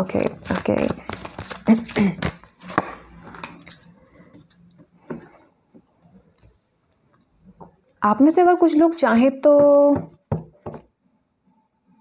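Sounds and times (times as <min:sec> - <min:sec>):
card handling rustle: 0:00.1 - 0:03.0.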